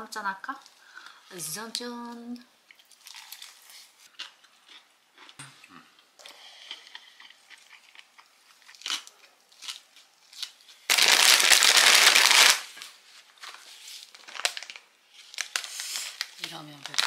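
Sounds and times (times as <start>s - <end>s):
plastic snack bag crinkling: 6.8s - 17.0s.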